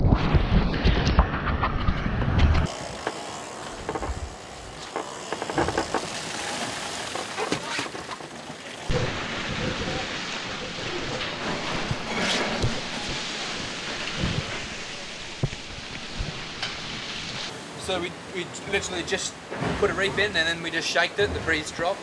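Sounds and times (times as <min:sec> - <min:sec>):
rush of wind and spray: 0:05.5 - 0:18.8.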